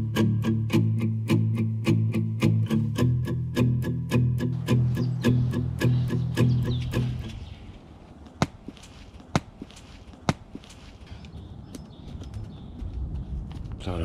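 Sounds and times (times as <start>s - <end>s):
strummed guitar music: 0.0s - 7.4s
hand digging in loose soil: 7.0s - 11.4s.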